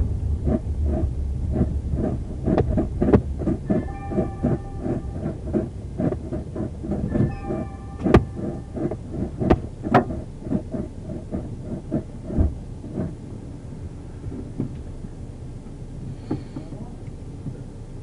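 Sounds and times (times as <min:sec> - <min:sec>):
electronic tone: 0:03.6 - 0:05.8, 0:07.0 - 0:09.1.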